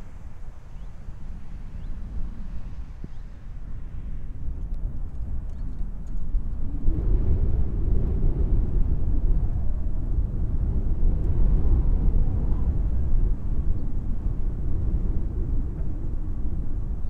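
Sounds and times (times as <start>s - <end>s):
jet engines rumbling: 0.0s - 17.0s.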